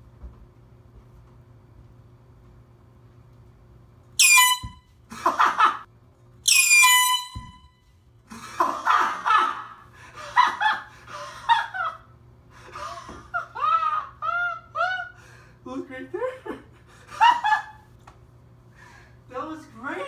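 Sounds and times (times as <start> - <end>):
air horn blasts: 4.2 - 4.9, 6.5 - 7.8
people laughing: 8.3 - 12.1, 12.8 - 15.2.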